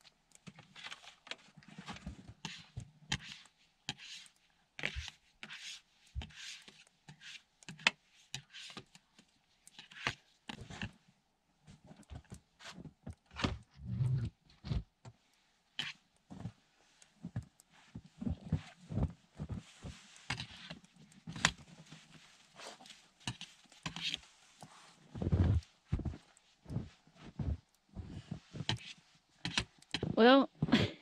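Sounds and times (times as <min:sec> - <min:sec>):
boots crunching in snow: 0:25.1 - 0:27.6.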